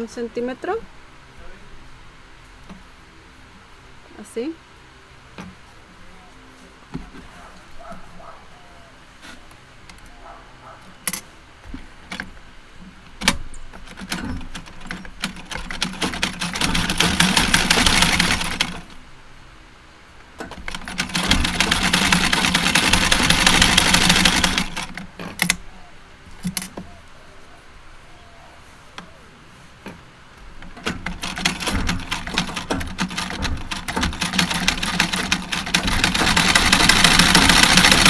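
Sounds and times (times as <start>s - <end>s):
sewing machine stitching: 13.9s - 18.9s, 20.5s - 25.1s, 30.8s - 38.0s.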